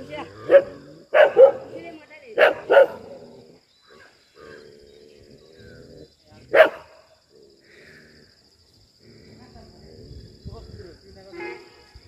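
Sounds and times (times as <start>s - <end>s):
dog barking: 0.5s - 1.7s, 2.4s - 3.0s, 6.5s - 7.0s.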